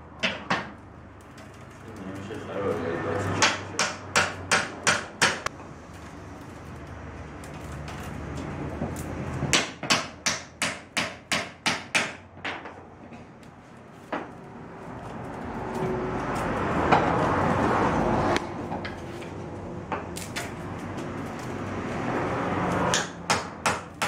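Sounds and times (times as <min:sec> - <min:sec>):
willow rods rustling and scraping: 0:01.2 - 0:03.0, 0:05.6 - 0:09.5, 0:12.9 - 0:22.9.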